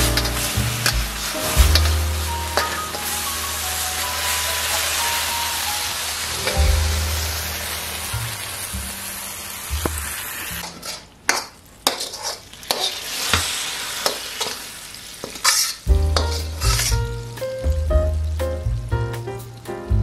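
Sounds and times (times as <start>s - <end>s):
food sizzling in a wok: 0.0s - 19.7s
spatula scraping and clinking: 11.8s - 13.0s.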